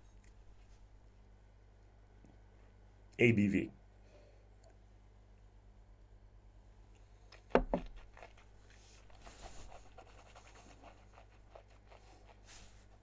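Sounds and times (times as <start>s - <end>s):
person breathing: 4.0s - 4.5s.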